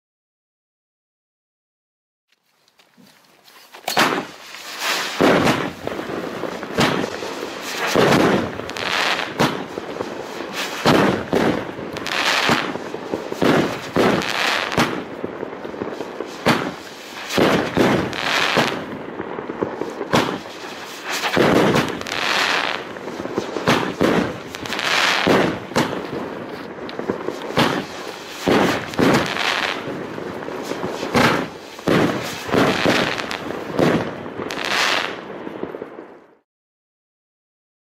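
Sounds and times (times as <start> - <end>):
hiss of burning fireworks: 3.4 - 36.4.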